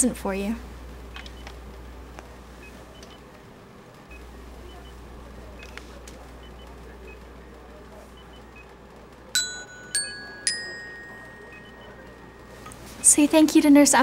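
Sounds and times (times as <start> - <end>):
metallophone notes ringing: 9.4 - 13.4.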